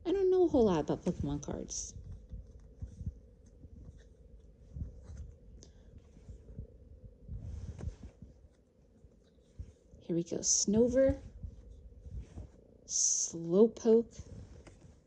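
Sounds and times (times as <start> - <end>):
faint steady hum: 0.0 - 15.0
soft swish: 7.3 - 8.3.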